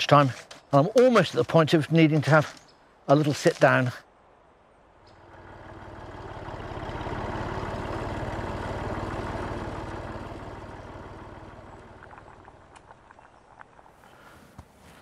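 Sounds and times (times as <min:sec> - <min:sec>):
tractor engine running: 0:05.0 - 0:14.3.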